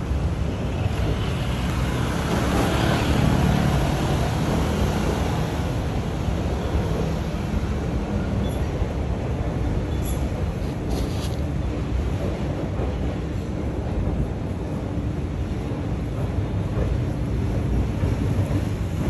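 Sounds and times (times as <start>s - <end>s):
train rumbling on viaduct: 0.0s - 19.0s.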